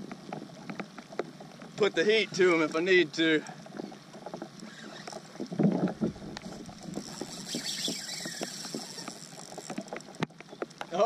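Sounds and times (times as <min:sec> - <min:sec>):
knocks and ticks from boat: 0:00.0 - 0:11.0
water lapping against kayak: 0:00.0 - 0:11.0.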